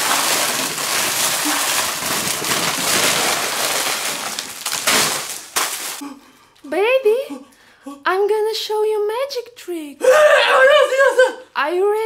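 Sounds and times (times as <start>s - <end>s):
candy clattering: 0.0s - 6.0s
candy rattling and crinkling: 0.0s - 6.0s.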